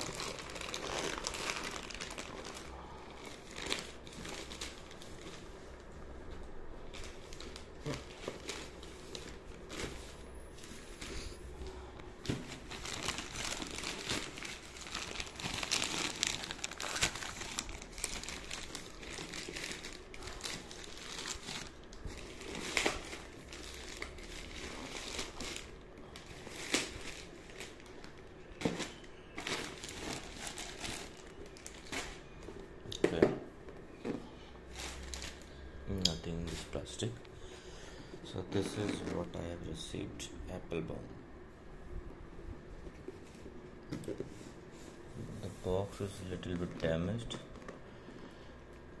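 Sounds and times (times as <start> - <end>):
plastic mailer bag crinkling: 0.0 - 5.8, 6.8 - 32.4.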